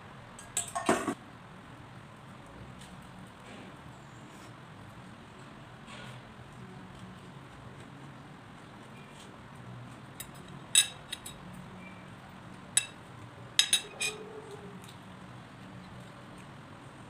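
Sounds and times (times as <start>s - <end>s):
fork clinking on ceramic bowl: 13.6s - 14.2s.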